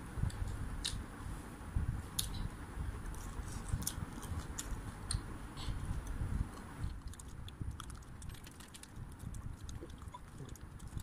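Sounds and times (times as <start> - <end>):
person chewing with wet smacks: 6.5 - 11.0.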